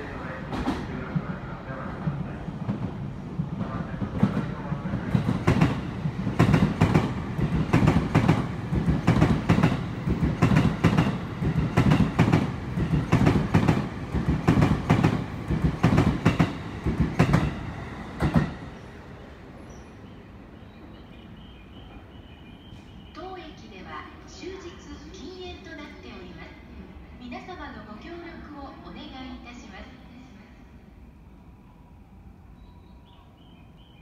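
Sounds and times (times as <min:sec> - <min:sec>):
train rumble: 0:00.0 - 0:25.5
train wheels clicking over rail joints: 0:05.0 - 0:18.6.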